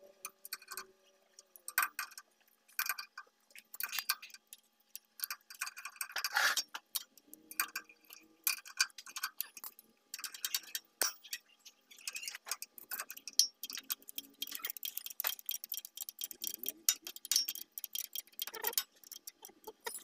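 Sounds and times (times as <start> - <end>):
wrench metallic clicks: 12.0 - 20.0.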